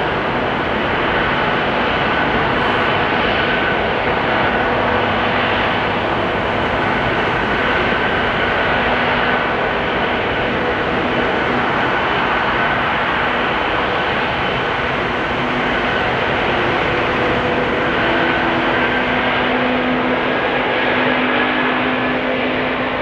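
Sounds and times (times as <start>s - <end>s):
jet engines running with high whine: 0.0s - 23.0s.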